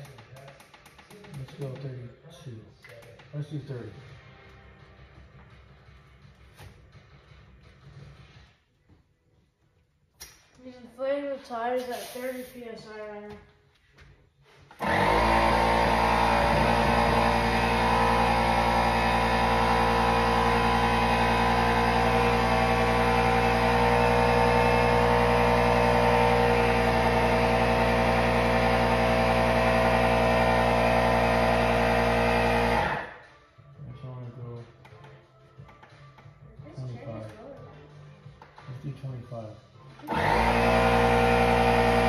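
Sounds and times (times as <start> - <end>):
electric tire inflator humming: 14.7 - 33.2, 40.0 - 42.0.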